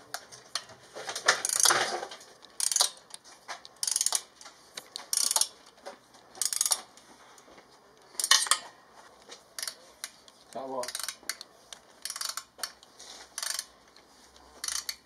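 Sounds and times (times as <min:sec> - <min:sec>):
socket ratchet wrench clicking: 0:02.5 - 0:04.3, 0:05.0 - 0:05.6, 0:06.4 - 0:06.9, 0:09.6 - 0:10.2, 0:10.8 - 0:13.7, 0:14.6 - 0:15.0.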